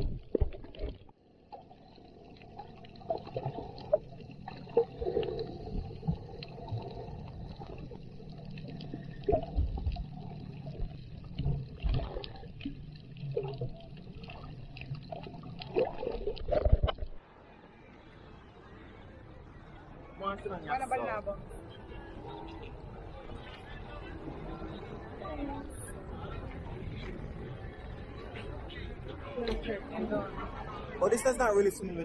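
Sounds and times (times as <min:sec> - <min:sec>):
muffled underwater gurgling and sloshing: 0:00.0 - 0:20.2, 0:21.0 - 0:31.0.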